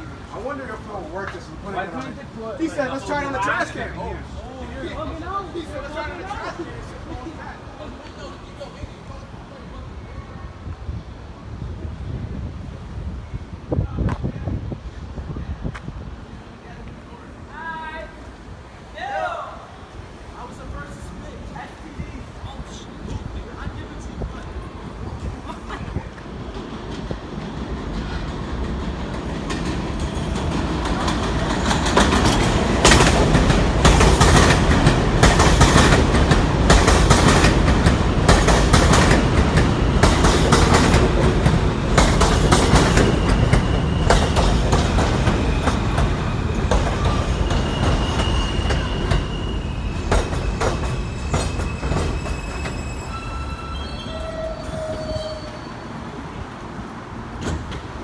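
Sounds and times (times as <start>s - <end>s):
train wheels clattering over rails: 24.6s - 53.1s, 57.2s - 58.0s
brake squeals: 42.5s - 56.1s.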